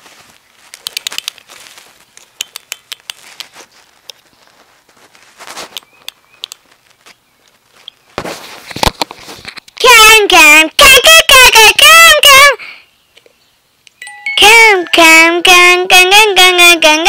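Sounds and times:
rubbing noise: 0.0s - 6.0s, 6.6s - 12.4s
device handling crackles and clicks: 0.7s - 4.2s, 5.7s - 8.0s.

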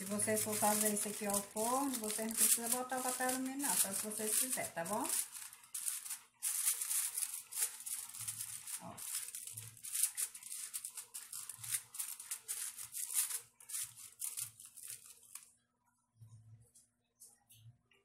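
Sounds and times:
aluminium foil crinkling: 0.0s - 15.5s.

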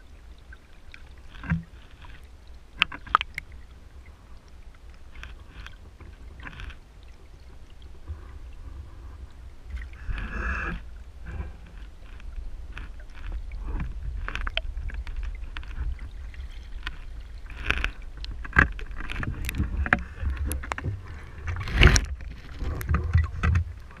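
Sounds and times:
muffled underwater rumble: 0.0s - 24.0s.

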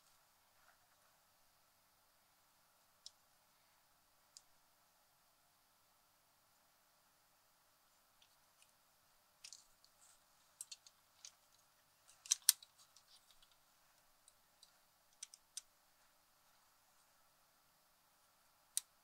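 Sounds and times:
cassette mechanism clicking and rattling: 12.2s - 13.6s.

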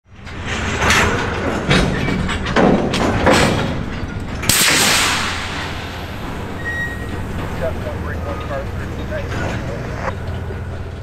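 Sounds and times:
freight cars clunking: 0.1s - 11.0s
low rumble: 3.0s - 9.4s
loud hiss of air: 4.5s - 6.6s.

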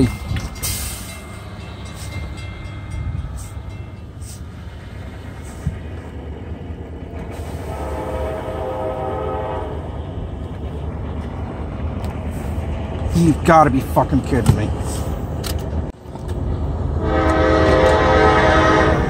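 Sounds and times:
distant locomotive air horn: 7.4s - 10.2s, 17.0s - 19.0s.

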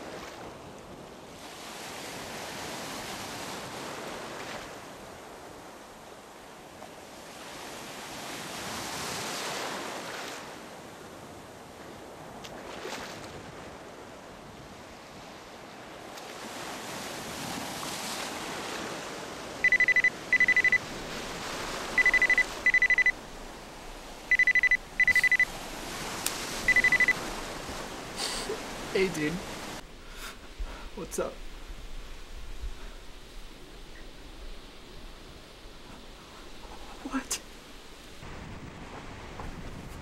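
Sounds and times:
sea surf: 0.0s - 40.0s
mobile phone ringing: 19.6s - 20.8s, 22.0s - 23.2s, 24.3s - 25.5s, 26.7s - 27.2s.

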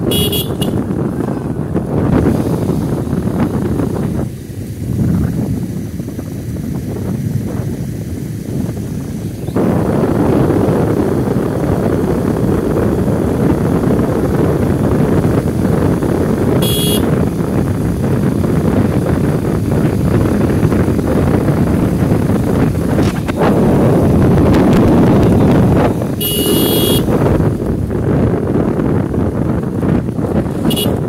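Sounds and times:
vehicle rumbling: 0.0s - 31.0s
wind buffeting microphone: 0.0s - 31.0s
short high-pitched beep: 26.2s - 27.0s.

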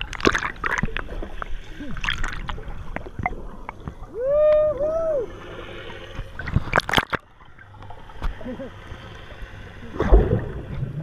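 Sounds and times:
underwater bubbles popping: 0.0s - 4.0s, 6.4s - 7.3s
water splashing: 0.0s - 4.1s, 5.3s - 11.0s.

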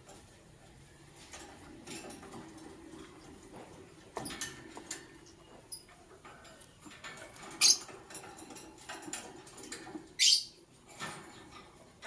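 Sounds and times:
birds shrill calls: 10.2s - 10.6s.

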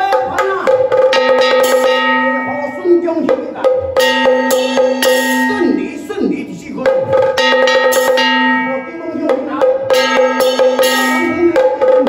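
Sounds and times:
sharp percussion strokes: 0.0s - 12.0s.

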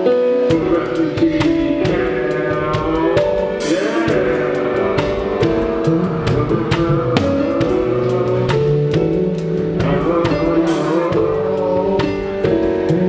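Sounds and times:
band playing sustained chords: 0.0s - 13.0s
drum kit beat: 0.0s - 13.0s.

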